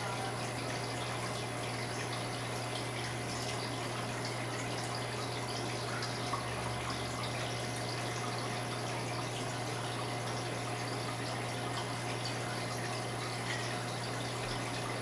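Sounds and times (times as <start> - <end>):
trickling splashing water: 0.0 - 15.0.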